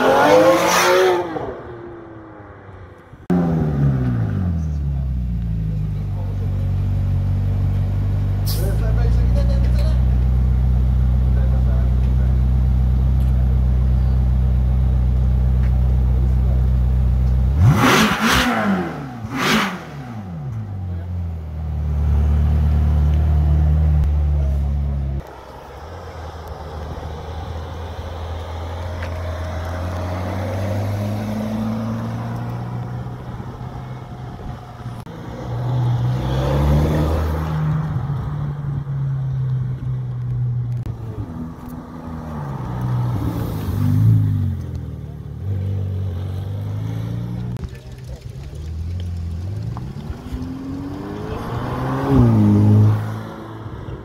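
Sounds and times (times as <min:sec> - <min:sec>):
engine revving: 0:00.0 - 0:02.0, 0:17.4 - 0:54.0
cars accelerating and passing: 0:00.0 - 0:05.3, 0:06.1 - 0:54.0
car engine idling: 0:02.5 - 0:17.7, 0:19.2 - 0:35.2, 0:46.5 - 0:51.3.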